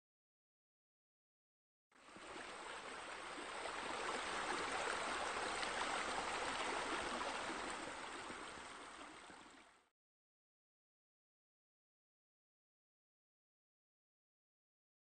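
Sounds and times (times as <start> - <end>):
running water rushing: 2.0 - 9.9.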